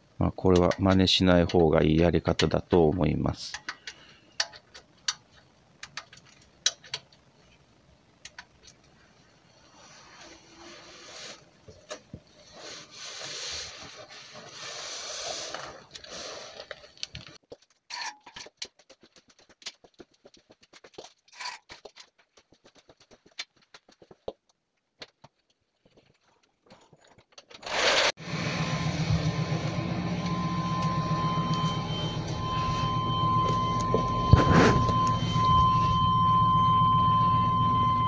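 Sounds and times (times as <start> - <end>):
hands and tools scraping: 9.6 - 18.5, 21.3 - 22.1.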